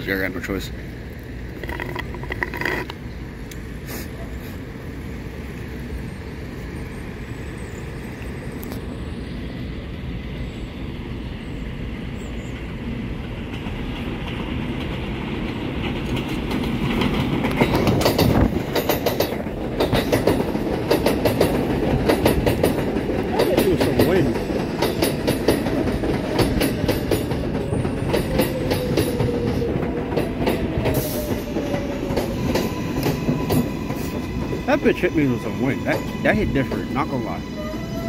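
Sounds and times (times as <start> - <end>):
subway train running noise: 0.0 - 38.0
train wheels clattering over rail joints: 1.5 - 3.0, 13.3 - 36.9.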